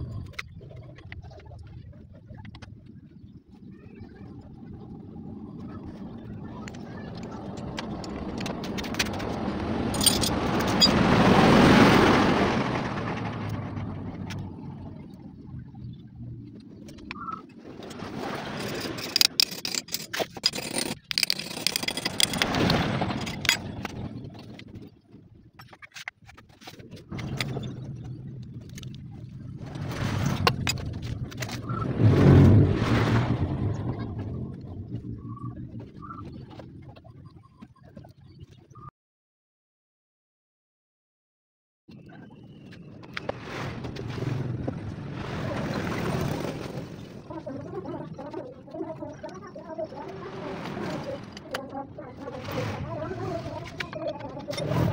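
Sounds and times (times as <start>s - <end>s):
vehicle engine passing by: 31.6s - 34.0s.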